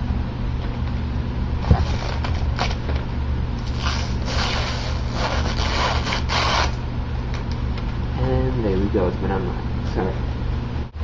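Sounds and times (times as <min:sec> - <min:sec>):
plastic packaging crinkling: 0:01.7 - 0:02.9.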